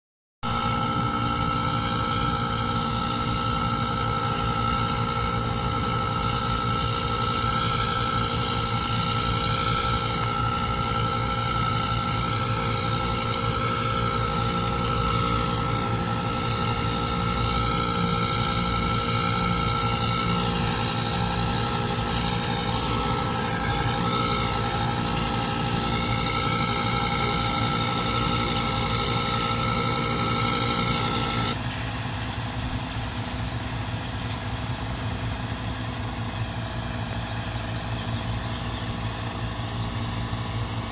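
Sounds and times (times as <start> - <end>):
high whine: 0.4 - 40.9
tractor diesel engine: 0.4 - 40.9.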